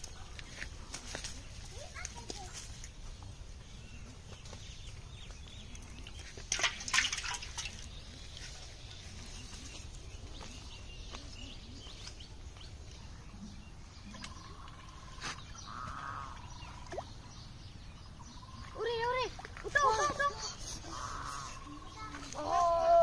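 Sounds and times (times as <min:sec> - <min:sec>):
faint birds chirping: 0:00.0 - 0:23.0
fish splashing in water: 0:05.6 - 0:09.7.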